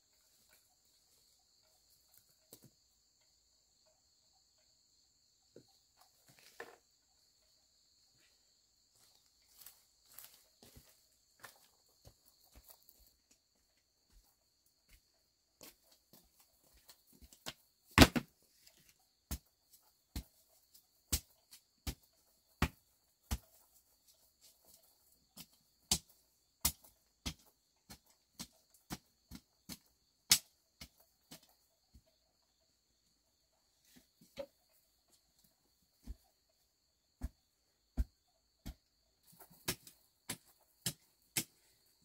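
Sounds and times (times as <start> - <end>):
footsteps on hard ground: 8.2 - 19.5, 34.0 - 42.0.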